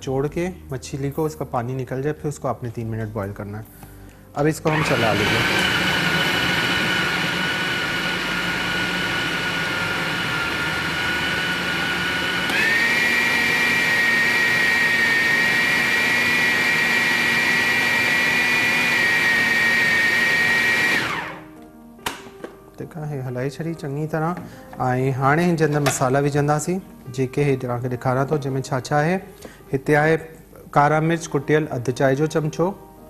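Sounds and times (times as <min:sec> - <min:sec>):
food chopper motor whirring: 0:04.7 - 0:21.5.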